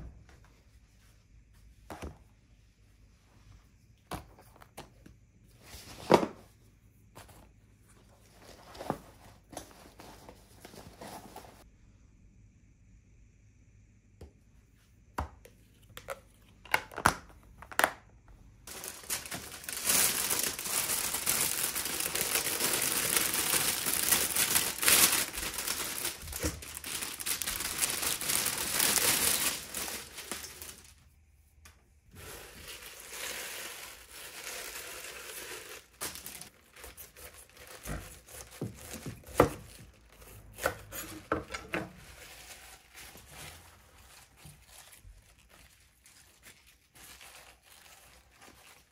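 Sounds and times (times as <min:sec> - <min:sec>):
plastic bag crinkling: 0:18.7 - 0:31.0, 0:32.1 - 0:40.0, 0:42.0 - 0:48.9.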